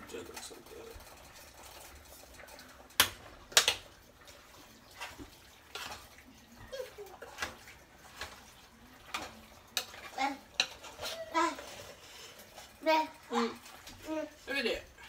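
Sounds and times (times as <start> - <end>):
metal spoon clanking on cooking pot: 9.0 - 11.0.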